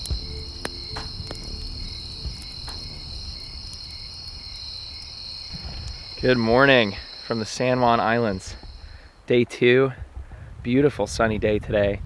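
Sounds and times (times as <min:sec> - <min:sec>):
campfire crackling pops: 0:00.0 - 0:09.1
crickets chirring: 0:00.0 - 0:09.3.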